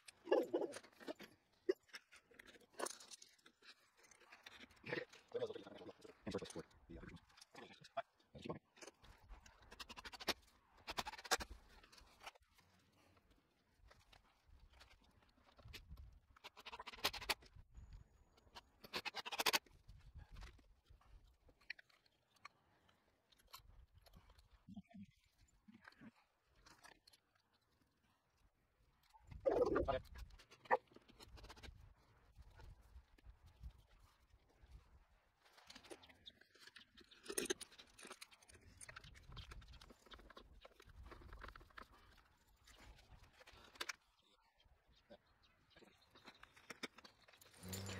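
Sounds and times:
plastic parts clicking and scraping: 0.0 - 28.0, 29.0 - 44.4, 45.2 - 47.9
screws rattling in tool bag: 46.3 - 47.9.

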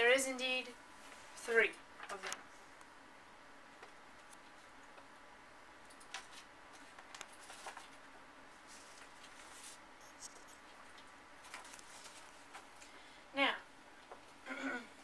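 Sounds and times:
soft clicks and rustles: 5.8 - 13.0.

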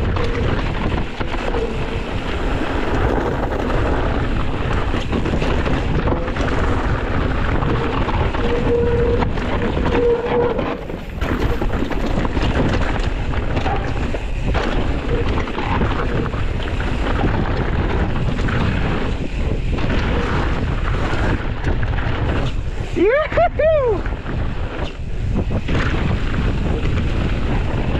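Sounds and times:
bike tyres rumbling on dirt: 0.0 - 27.9
wind buffeting microphone: 0.0 - 27.9.

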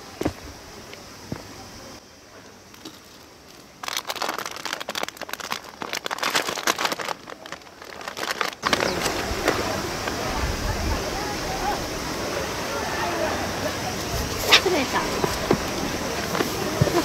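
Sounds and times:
crackling crinkling rustle: 2.6 - 10.3.

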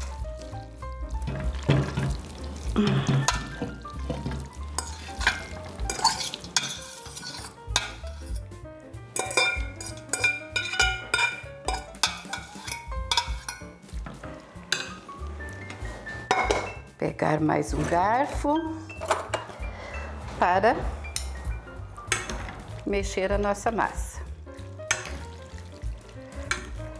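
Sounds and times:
metal clinking and scraping: 3.0 - 8.5, 9.1 - 16.8, 20.4 - 22.8.

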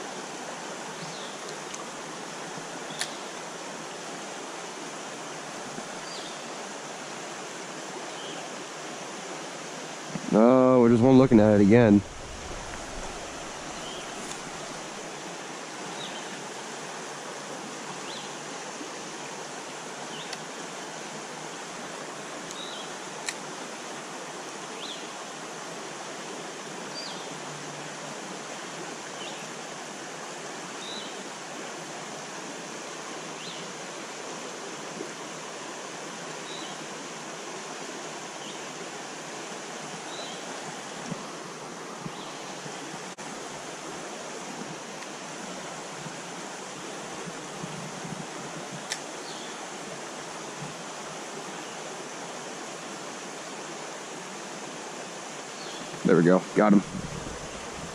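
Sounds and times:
creek water rushing: 0.0 - 57.9.

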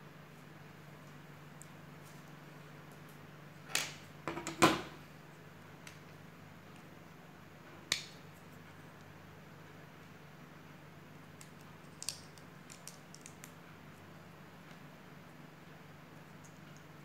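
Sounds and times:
plastic bricks clicking and snapping: 11.5 - 13.5.

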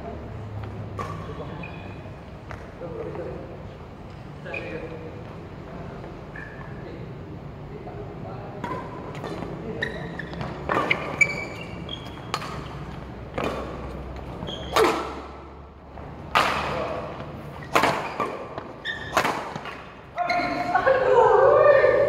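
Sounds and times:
rackets hitting shuttlecock: 0.9 - 1.5, 10.4 - 15.4, 16.2 - 20.5.

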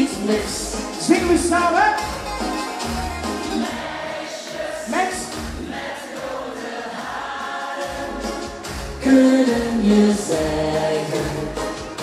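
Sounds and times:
backing music: 0.0 - 12.0
audience singing along: 3.4 - 12.0.

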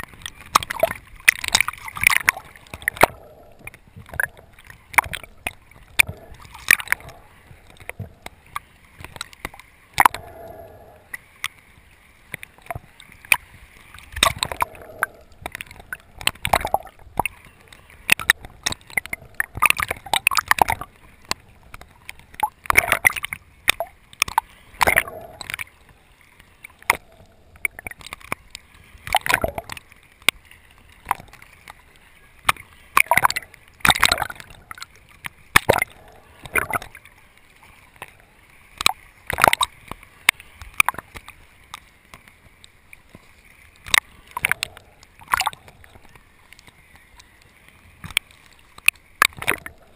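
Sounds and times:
muffled water sloshing underwater: 0.0 - 49.9
water splashes: 0.0 - 49.9.

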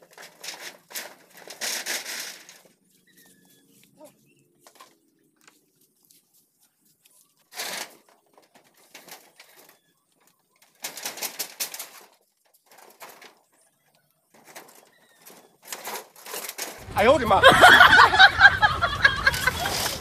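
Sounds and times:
corrugated iron sheets rattling: 0.0 - 2.8, 7.5 - 9.9, 10.6 - 13.7, 14.3 - 20.0.

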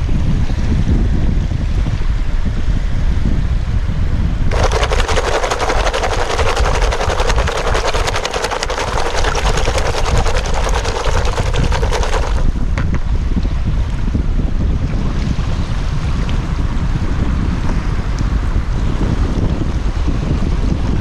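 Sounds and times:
wind on microphone: 0.0 - 21.0
shells rattling in a bucket: 4.5 - 12.6
water sloshing: 4.5 - 12.6.

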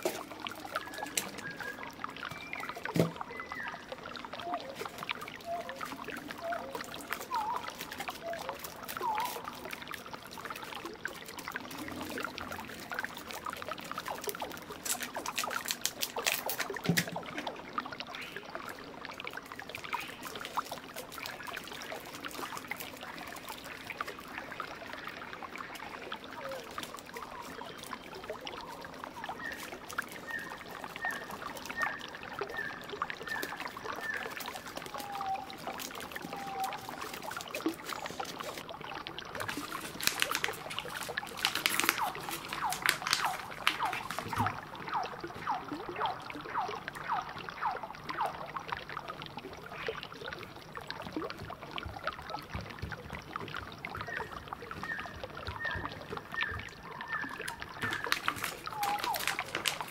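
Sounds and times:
foil crinkling and crackling: 0.0 - 3.1, 4.5 - 17.2, 19.8 - 24.2, 26.2 - 32.0, 33.2 - 38.7, 39.3 - 44.6, 57.5 - 59.9.

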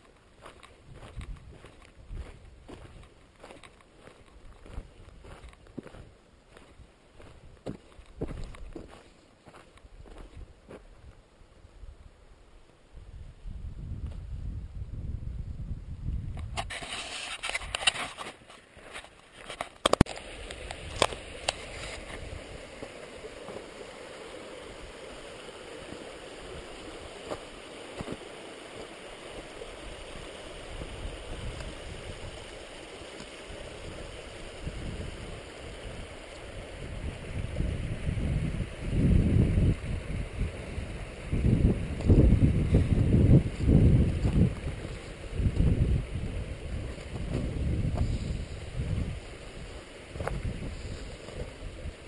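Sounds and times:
steady outdoor hiss: 0.0 - 52.0
wind buffeting microphone: 0.4 - 10.8, 13.0 - 16.8, 29.4 - 32.6, 33.4 - 52.0.

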